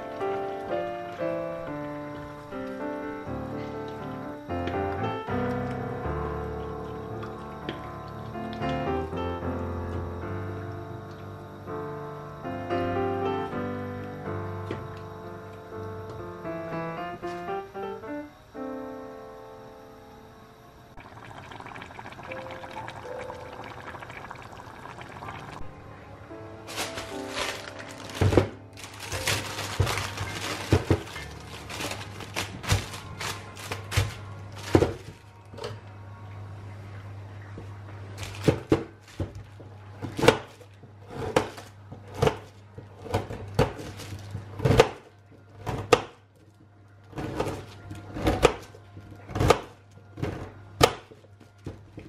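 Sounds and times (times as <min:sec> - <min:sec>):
paper and plastic bag rustling: 0:26.6 - 0:35.6, 0:38.1 - 0:39.6, 0:41.4 - 0:44.7, 0:46.4 - 0:50.4.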